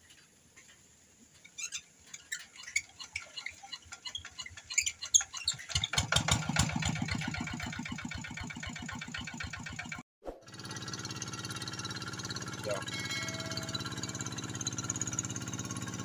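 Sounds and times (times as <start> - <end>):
diesel engine cranking clicks: 3.7 - 10.0
diesel engine chugging: 5.7 - 16.0.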